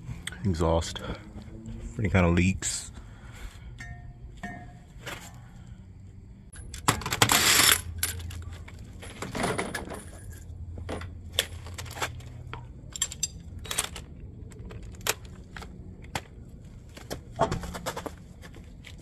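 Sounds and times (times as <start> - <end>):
small metal objects clinking: 12.8 - 15.2.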